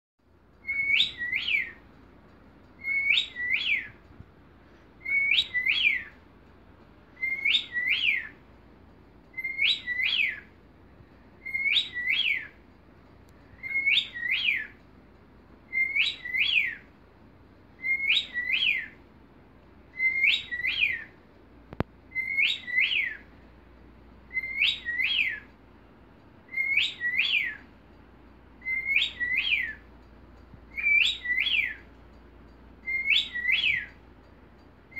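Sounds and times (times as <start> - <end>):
cockatiel whistling: 0.6 - 1.8, 2.8 - 4.0, 5.0 - 6.2, 7.2 - 8.4, 9.3 - 10.6, 11.4 - 12.6, 13.6 - 14.8, 15.7 - 16.9, 17.8 - 19.0, 19.9 - 21.2, 22.1 - 23.3, 24.3 - 25.5, 26.5 - 27.7, 28.6 - 29.9, 30.7 - 31.9, 32.8 - 34.0.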